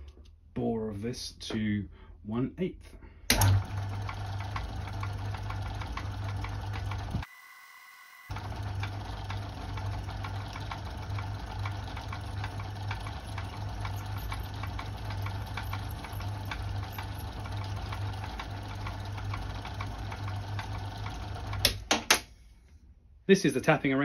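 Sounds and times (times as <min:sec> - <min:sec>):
lathe humming: 0:03.4 - 0:21.8.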